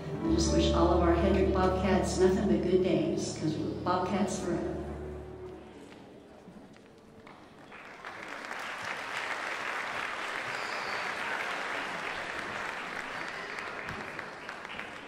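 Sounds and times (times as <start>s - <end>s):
audience applauding: 7.0s - 15.0s.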